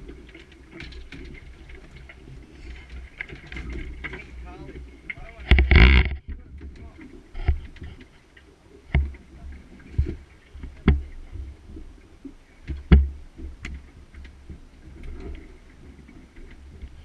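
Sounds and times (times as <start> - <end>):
waves thumping against boat hull: 0.0 - 8.2, 8.8 - 15.4
low rumble of wind and water: 0.0 - 17.0.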